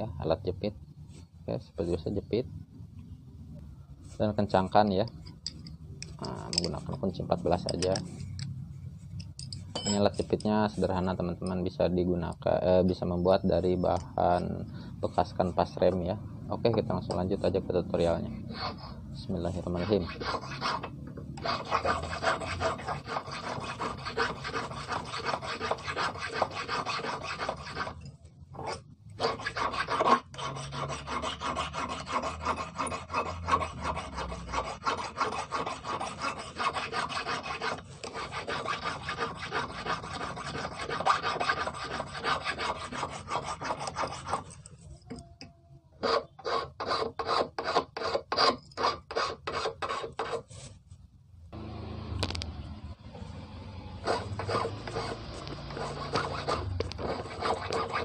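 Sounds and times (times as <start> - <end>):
hand file rasping on metal rod: 18.4 - 44.6, 46.0 - 50.6, 54.0 - 58.0.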